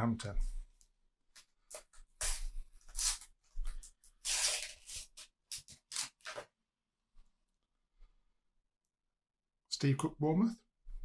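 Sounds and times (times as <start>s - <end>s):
packet tearing: 2.2s - 3.3s, 4.1s - 6.5s.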